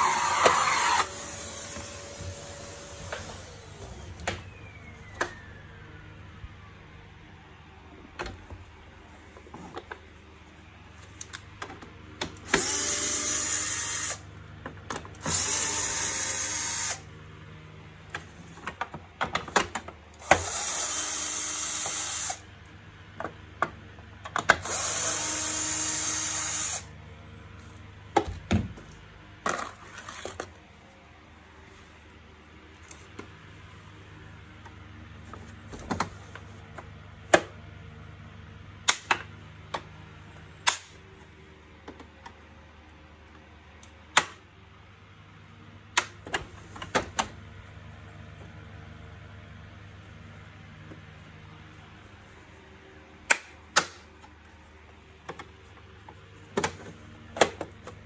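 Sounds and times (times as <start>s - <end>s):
cordless drill driving screws: 0.0s - 3.7s, 15.2s - 17.0s.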